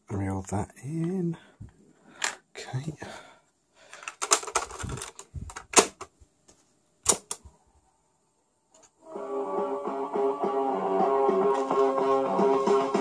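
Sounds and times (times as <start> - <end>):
guitar music from speaker: 9.0 - 13.0.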